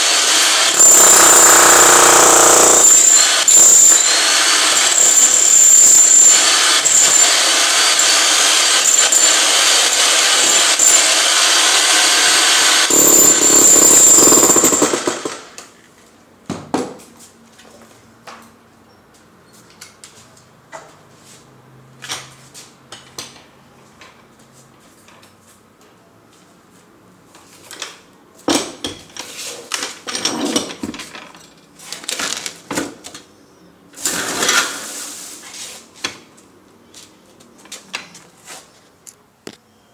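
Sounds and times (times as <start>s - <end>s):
demolition hammer pounding concrete: 0.0s - 15.6s.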